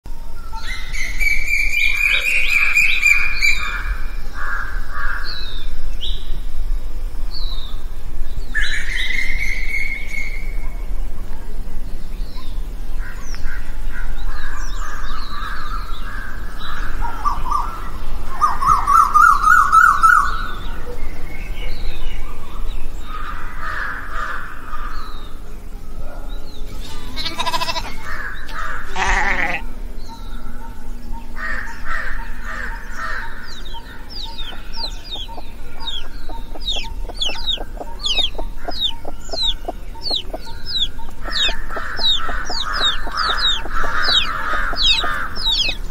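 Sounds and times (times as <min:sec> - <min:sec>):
birdsong: 0:00.1 - 0:45.9
fowl-like calls: 0:27.0 - 0:29.6, 0:31.9 - 0:45.9
high falling chirps: 0:33.0 - 0:45.9.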